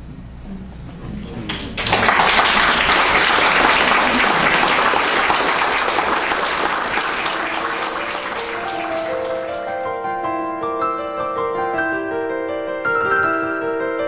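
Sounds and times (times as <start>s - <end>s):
audience applauding: 1.5s - 9.9s.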